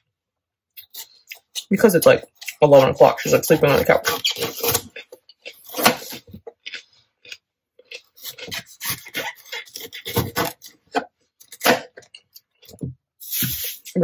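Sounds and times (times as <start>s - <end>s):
knife cutting pepper on board: 8.4s - 10.6s.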